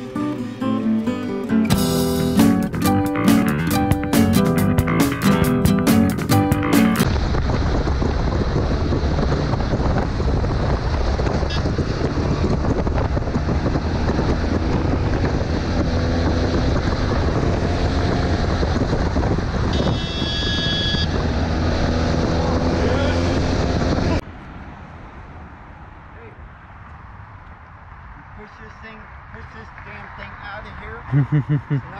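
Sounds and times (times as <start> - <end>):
motorcycle engine running: 1.7 - 24.2
wind rush over microphone: 7.0 - 24.2.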